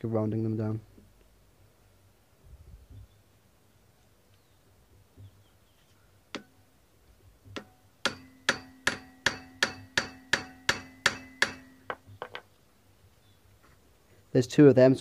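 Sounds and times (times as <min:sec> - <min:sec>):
hammer striking impact driver: 0:07.6 - 0:11.9.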